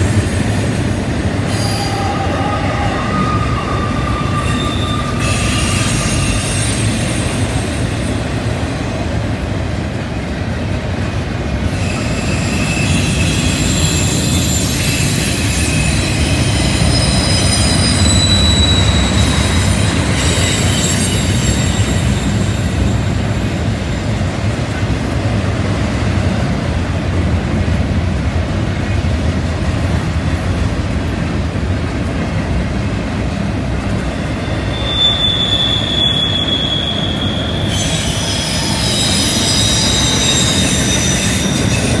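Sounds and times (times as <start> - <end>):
train wheels rumbling on rails: 0.0 - 42.0
high-pitched wheel squeal: 1.5 - 7.6, 11.7 - 22.7, 34.1 - 42.0.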